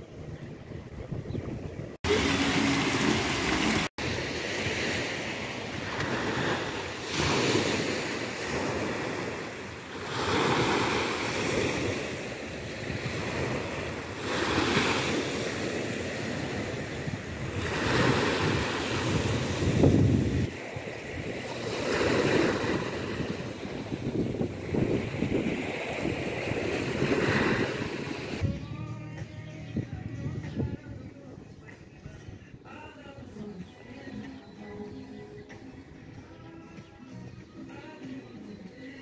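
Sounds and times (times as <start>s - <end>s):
wind on microphone: 0.0s - 33.4s
waves breaking on sandy shore: 2.0s - 28.4s.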